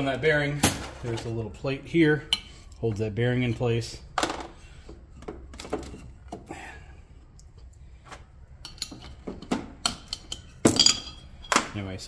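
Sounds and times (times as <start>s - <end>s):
metal parts clinking and scraping: 8.6s - 11.8s.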